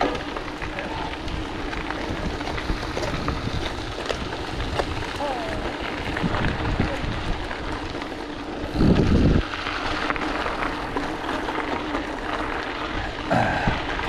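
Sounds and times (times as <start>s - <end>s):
bike tyres crunching on gravel: 0.0s - 14.0s
wind on microphone: 2.0s - 7.6s, 8.7s - 9.5s.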